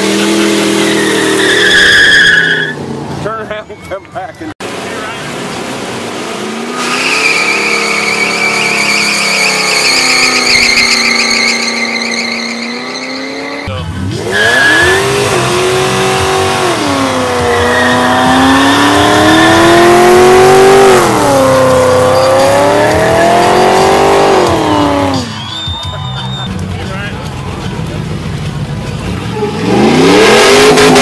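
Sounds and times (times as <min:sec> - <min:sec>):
car engine revving: 0:00.0 - 0:03.4, 0:04.6 - 0:31.0
tyres squealing: 0:00.5 - 0:02.8, 0:06.7 - 0:26.5.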